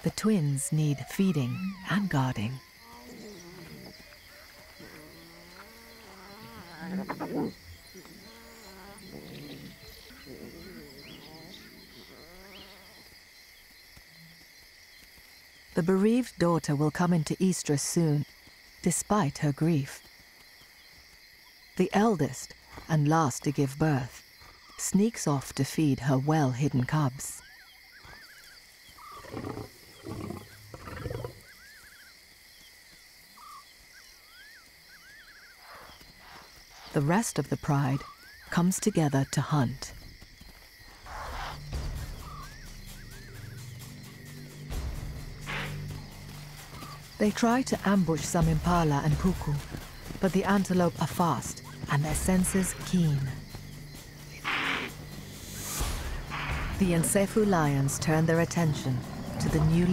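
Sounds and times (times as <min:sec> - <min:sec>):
lion cubs mewing: 0:00.7 - 0:13.2, 0:27.4 - 0:32.1, 0:54.3 - 0:57.4.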